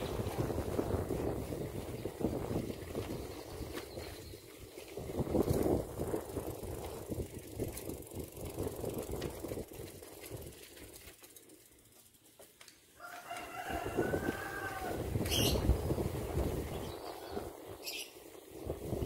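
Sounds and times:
wind on microphone: 0:00.0 - 0:10.6, 0:13.3 - 0:19.0
rooster crowing: 0:13.0 - 0:15.1.

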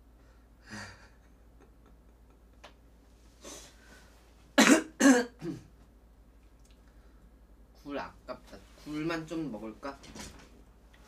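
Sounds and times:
woman breathing: 0:03.4 - 0:04.3
woman coughing: 0:04.6 - 0:05.7.

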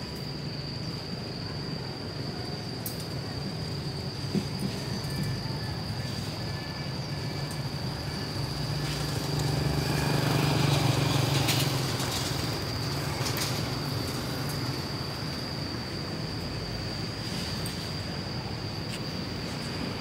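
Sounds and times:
street traffic: 0:00.0 - 0:20.0.

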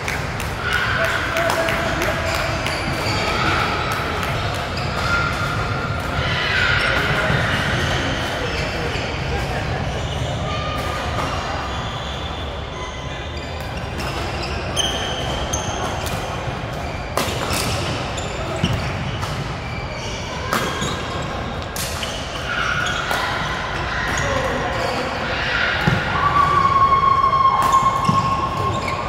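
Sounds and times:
echoing hall background noise: 0:00.0 - 0:29.0
murmur of voices: 0:00.0 - 0:29.0
rackets hitting shuttlecock: 0:13.6 - 0:19.7, 0:20.5 - 0:24.7, 0:27.6 - 0:29.0.

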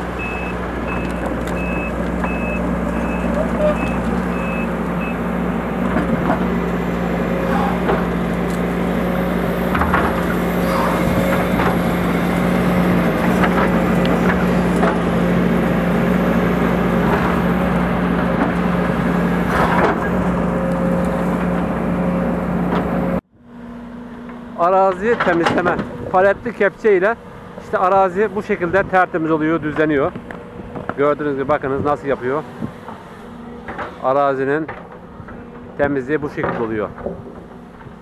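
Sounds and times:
excavator diesel engine running: 0:00.0 - 0:38.0
travel alarm beeping: 0:00.2 - 0:05.2.

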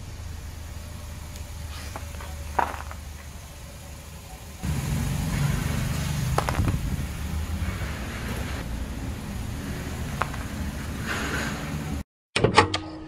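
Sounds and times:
car engine running: 0:00.0 - 0:12.0
candies crushed by car tyre: 0:01.7 - 0:03.2, 0:06.2 - 0:07.0.

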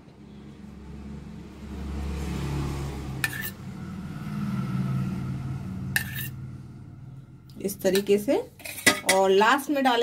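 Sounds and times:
low motor drone: 0:00.2 - 0:07.6.

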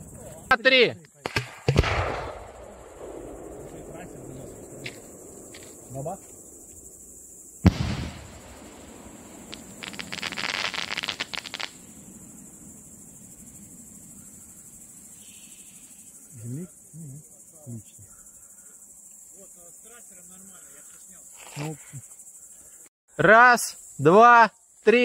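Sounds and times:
crickets chirping: 0:00.0 - 0:25.0
firework bang: 0:01.2 - 0:06.9, 0:07.6 - 0:12.5
firework crackling: 0:01.3 - 0:16.0.

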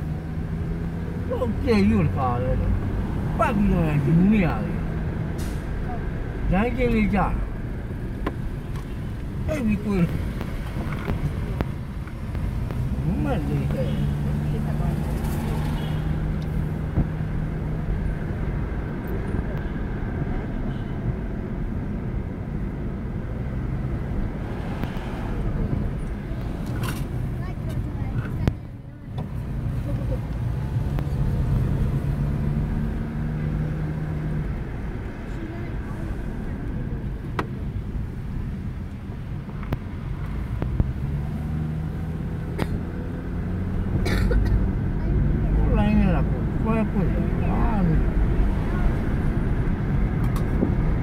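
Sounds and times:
car engine and tyres rumbling: 0:00.0 - 0:51.0
car cabin rumble: 0:05.8 - 0:17.7.

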